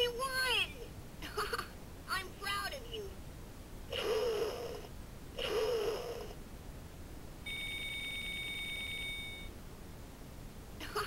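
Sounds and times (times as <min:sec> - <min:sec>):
short wavering electronic bursts: 0:03.9 - 0:06.4.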